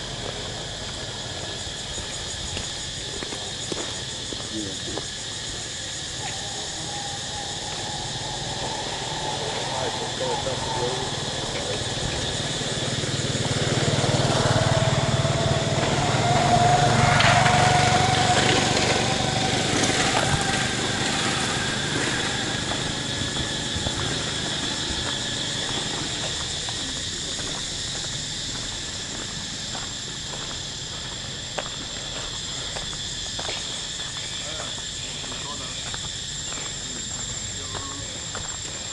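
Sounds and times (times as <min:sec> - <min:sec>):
small engine running: 0:07.6 - 0:32.9.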